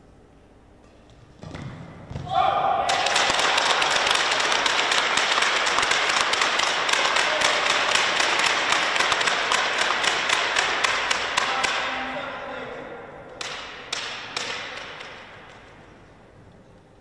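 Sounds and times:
crowd applauding: 0:02.9 - 0:11.6.

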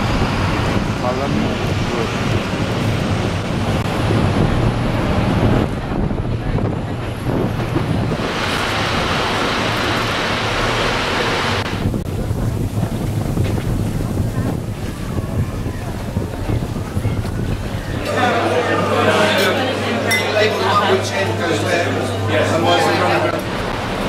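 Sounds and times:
wind blowing on microphone: 0:00.0 - 0:18.2
outdoor noise: 0:00.0 - 0:21.4, 0:22.1 - 0:24.0.

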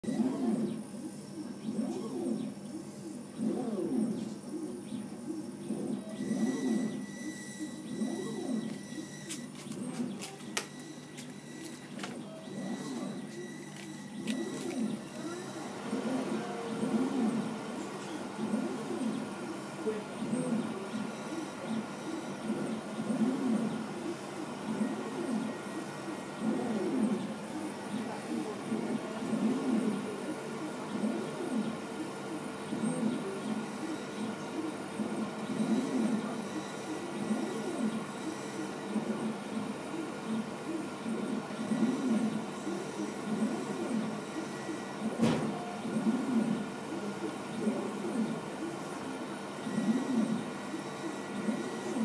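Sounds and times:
steady machine hum: 0:00.0 - 0:52.0.

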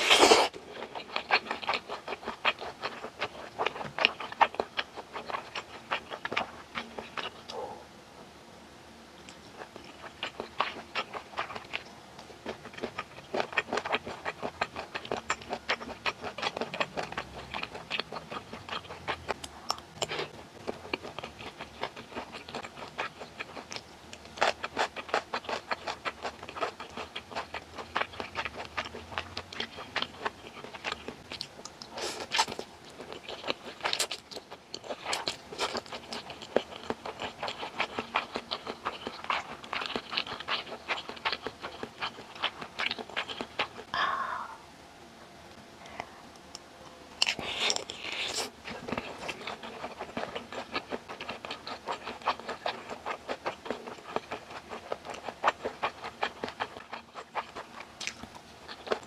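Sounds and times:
close chewing mouth clicks: 0:09.3 - 0:43.9, 0:47.2 - 0:59.0.

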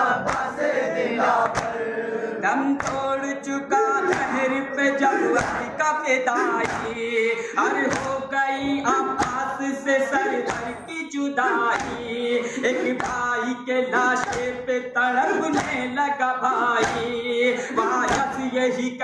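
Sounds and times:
rhythmic hand strikes: 0:00.0 - 0:01.8, 0:02.6 - 0:16.0, 0:16.6 - 0:18.6
men chanting a lament: 0:00.0 - 0:19.0.

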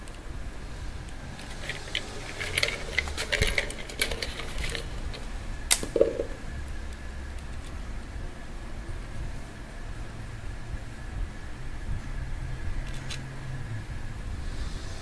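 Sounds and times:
hand tool clicking on metal bolts: 0:01.4 - 0:06.4.

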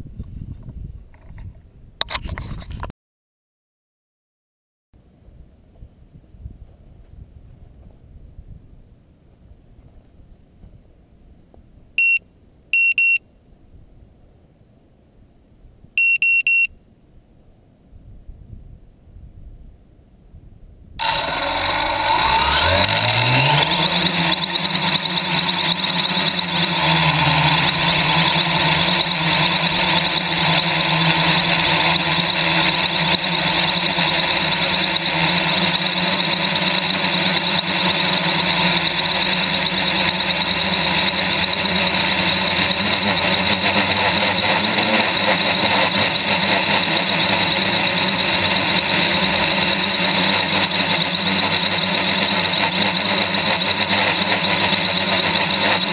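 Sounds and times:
drone motors whining: 0:21.0 - 0:55.9
propeller wash rushing: 0:21.0 - 0:55.9.

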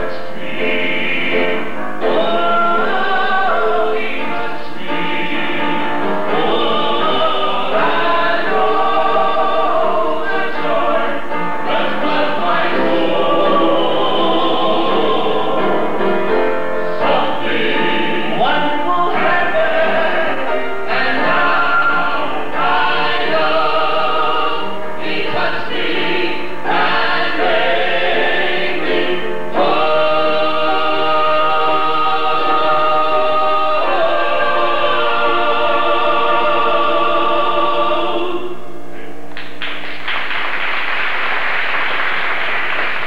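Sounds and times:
vocal group singing in harmony: 0:00.0 - 0:38.8
applause: 0:39.3 - 0:43.0.

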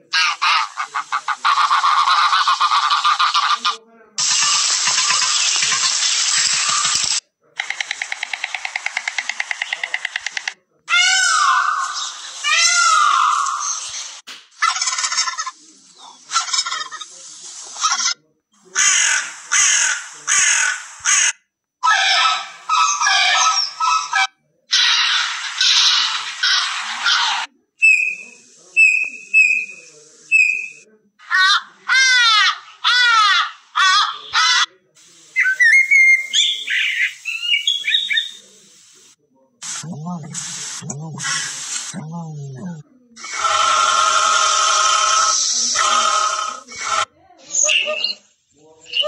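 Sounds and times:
turkey gobbling: 0:00.1 - 0:05.4, 0:18.8 - 0:27.3
ibis falling calls: 0:00.1 - 0:17.0, 0:18.7 - 0:34.7, 0:35.3 - 0:39.0
bullfinch piping whistles: 0:27.8 - 0:30.8, 0:35.4 - 0:38.4
blackbird alarm calls: 0:35.4 - 0:38.4.

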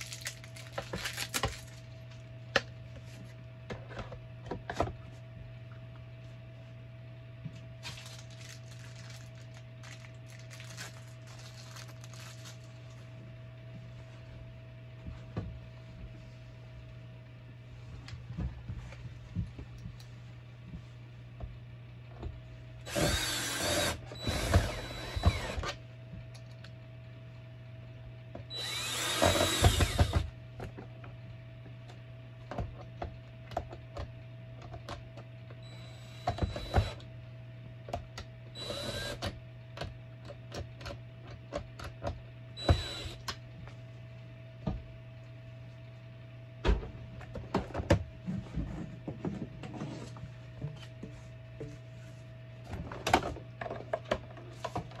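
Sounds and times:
steady low hum: 0:00.0 - 0:55.0
power drill driving screws: 0:22.9 - 0:25.7, 0:28.5 - 0:30.2, 0:35.8 - 0:37.0, 0:38.6 - 0:39.2, 0:42.6 - 0:43.2.

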